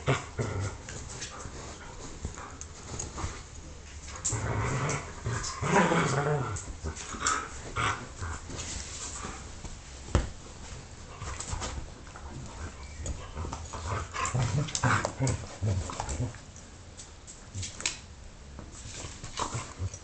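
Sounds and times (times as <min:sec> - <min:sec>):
dogs scuffling: 0:00.4 - 0:20.0.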